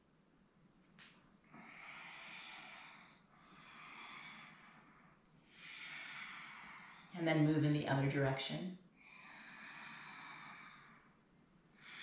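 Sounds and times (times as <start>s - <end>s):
woman breathing softly: 1.5s - 7.1s, 8.8s - 12.0s.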